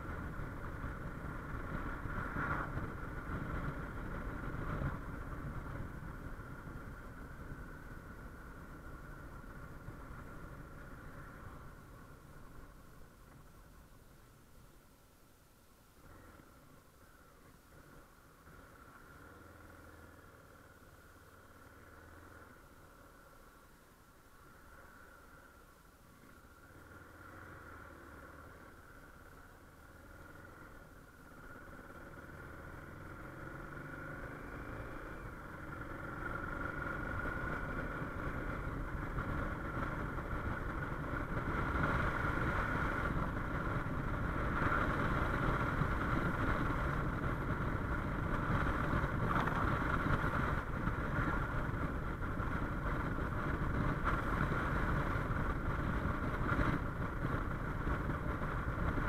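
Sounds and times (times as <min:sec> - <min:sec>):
wind noise on microphone: 0:00.0 - 0:08.2, 0:36.9 - 0:59.0
motorcycle engine accelerating: 0:26.1 - 0:59.0.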